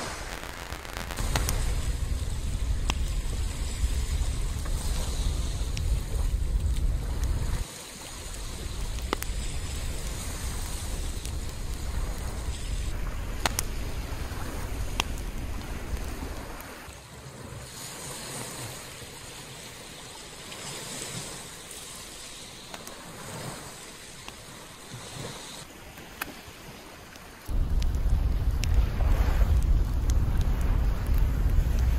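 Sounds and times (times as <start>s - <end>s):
wind rumbling on microphone: 0.0s - 18.9s, 27.5s - 31.9s
sea waves on sandy beach: 0.0s - 31.9s.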